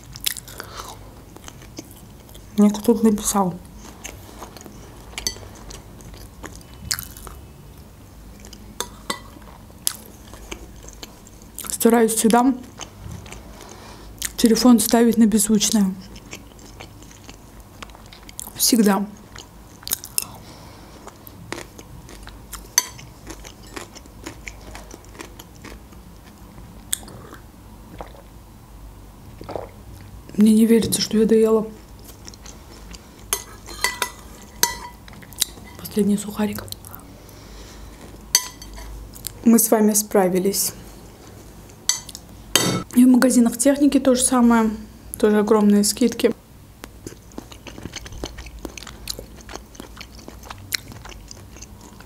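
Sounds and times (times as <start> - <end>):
chewing food: 3.7 - 7.4, 15.7 - 20.4, 21.0 - 28.3, 31.8 - 35.8, 46.8 - 52.0
fork clinking on ceramic bowl: 33.3 - 35.0, 38.4 - 38.9.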